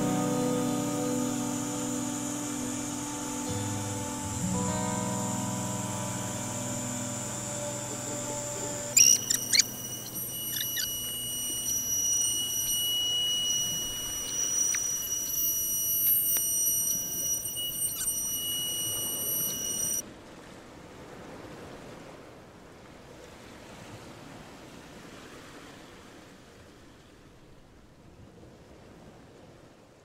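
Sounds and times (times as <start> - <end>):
even hiss: 0.0 - 20.0
router spindle whining: 0.0 - 20.0.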